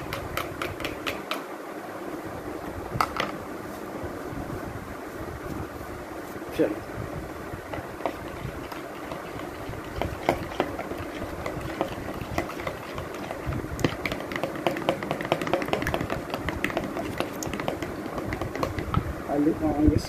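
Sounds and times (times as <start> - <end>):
metal utensil stirring yogurt: 7.7 - 18.9.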